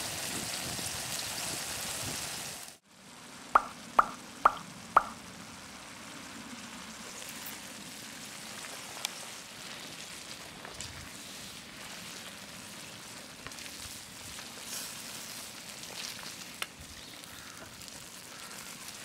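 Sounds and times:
sauce bubbling and sizzling: 0:00.0 - 0:19.0
soft steady sizzle: 0:00.0 - 0:19.0
pitched plop sound effects: 0:03.6 - 0:05.2.

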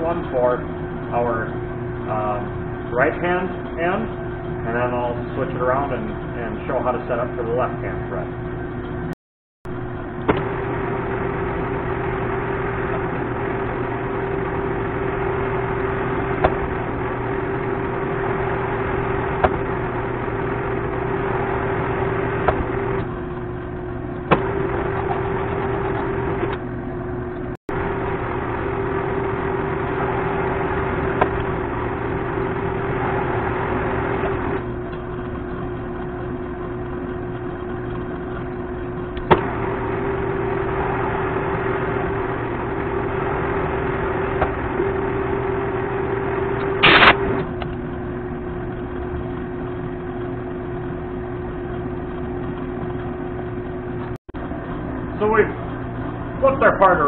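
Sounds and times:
lathe running with mechanical hum: 0:00.0 - 0:09.1, 0:09.7 - 0:57.0
sharp click: 0:46.8 - 0:47.8.

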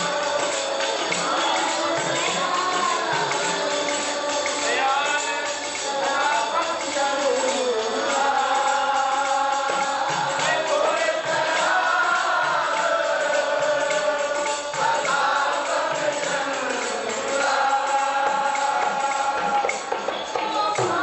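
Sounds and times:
light percussion beat: 0:00.0 - 0:21.0
men singing along: 0:00.0 - 0:21.0
woman singing a hymn: 0:01.2 - 0:04.5, 0:20.3 - 0:21.0.

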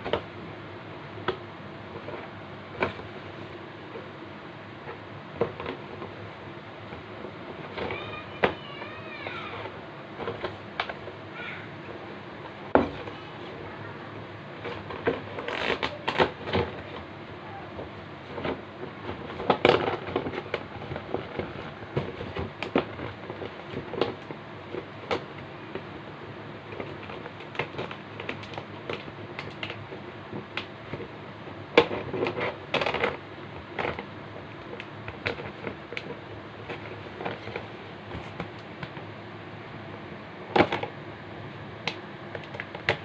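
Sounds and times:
plastic packaging crinkling: 0:14.7 - 0:17.0.

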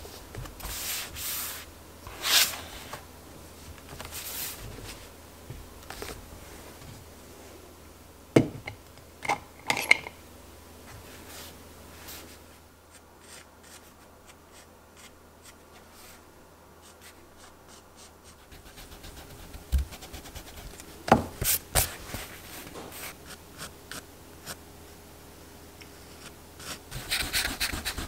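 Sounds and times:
pencil scratching on paper: 0:12.9 - 0:15.6, 0:16.8 - 0:20.8, 0:26.2 - 0:28.0.

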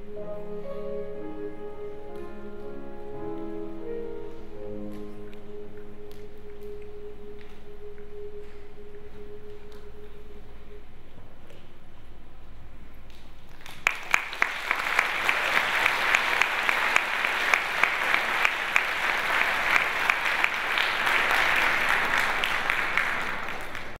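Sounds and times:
audience applause: 0:13.6 - 0:24.0.

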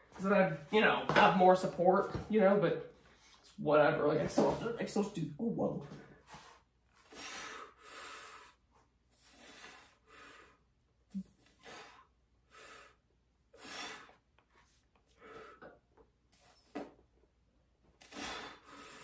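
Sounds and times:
man breathing hard: 0:06.0 - 0:14.3, 0:15.1 - 0:15.9, 0:18.0 - 0:19.0.

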